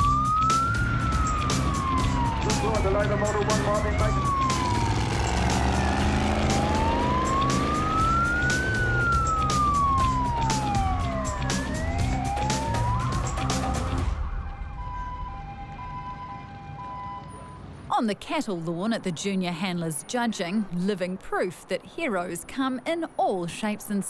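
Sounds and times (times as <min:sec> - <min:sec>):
police siren wailing: 0:00.0 - 0:17.8
music with steady drum beat: 0:08.0 - 0:14.1.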